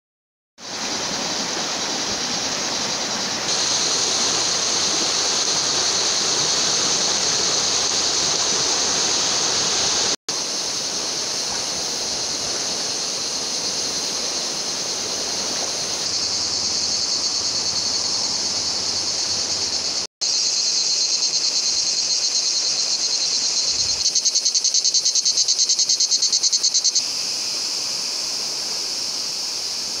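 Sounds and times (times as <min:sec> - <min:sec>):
shrill insect chorus: 0:00.6 - 0:30.0
river rushing over rapids: 0:00.7 - 0:19.8.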